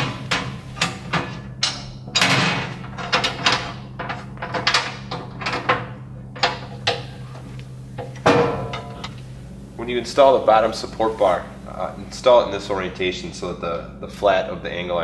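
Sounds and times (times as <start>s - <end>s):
metal knocks and clanks: 0.0s - 9.4s
steady low hum: 0.0s - 15.0s.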